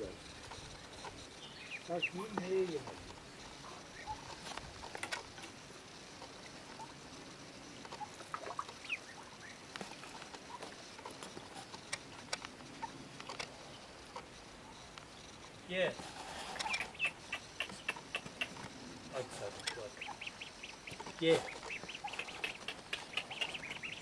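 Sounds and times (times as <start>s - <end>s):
ducks dabbling in water: 7.8s - 14.4s, 19.6s - 24.0s.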